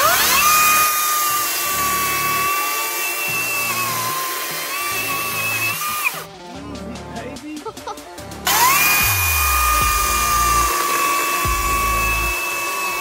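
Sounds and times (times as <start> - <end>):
chainsaw whining cutting branch: 0.0 - 6.2, 8.5 - 13.0.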